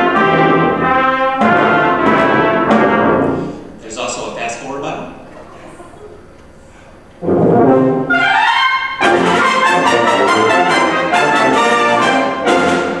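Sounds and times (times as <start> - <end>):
wind band playing with brass: 0.0 - 3.8, 7.2 - 13.0.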